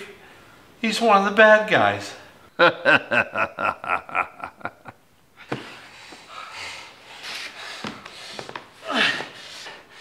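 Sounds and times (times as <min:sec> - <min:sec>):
man breathing hard: 0:05.6 - 0:10.0.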